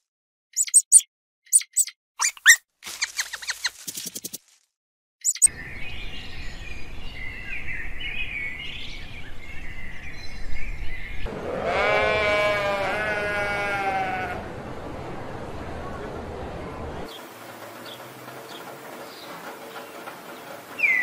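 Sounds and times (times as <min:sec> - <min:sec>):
faint bird chirps: 0:00.6 - 0:03.7, 0:05.2 - 0:08.2
outdoor background noise: 0:05.2 - 0:21.0
sheep bleating: 0:11.3 - 0:14.5.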